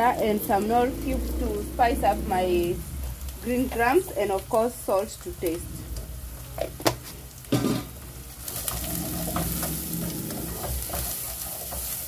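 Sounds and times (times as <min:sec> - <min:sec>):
onions sizzling in a pot: 0:00.0 - 0:12.0
wooden spoon scraping pot: 0:08.5 - 0:12.0.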